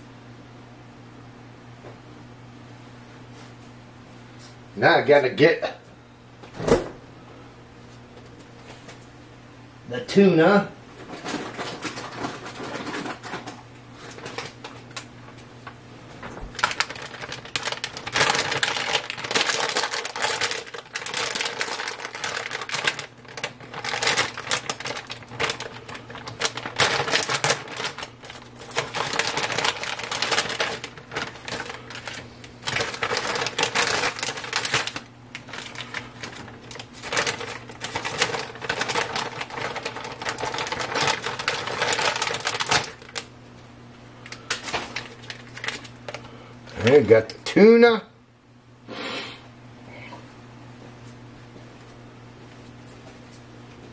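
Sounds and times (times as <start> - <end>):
faint steady hum: 0.0 - 53.9
plastic packaging crinkling: 11.2 - 15.1, 16.2 - 43.3, 44.2 - 47.1.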